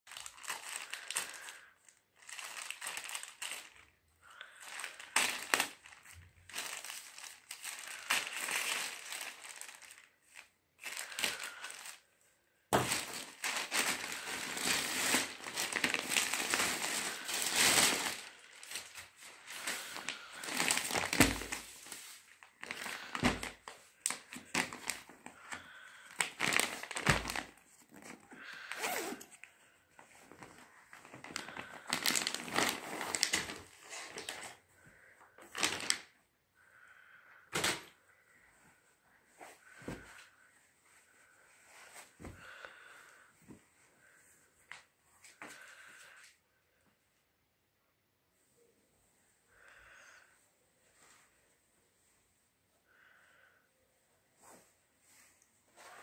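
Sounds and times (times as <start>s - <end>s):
plastic packaging crinkling: 0.1s - 12.0s, 12.7s - 29.4s, 30.0s - 34.6s, 35.3s - 36.2s.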